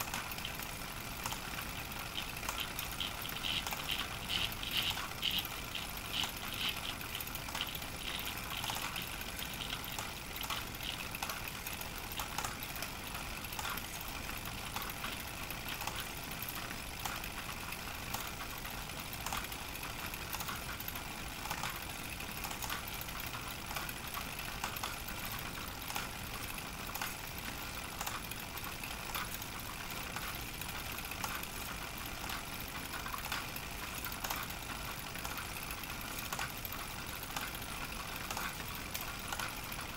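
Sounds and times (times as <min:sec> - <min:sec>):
hand-crank film projector clicking: 0:00.0 - 0:39.9.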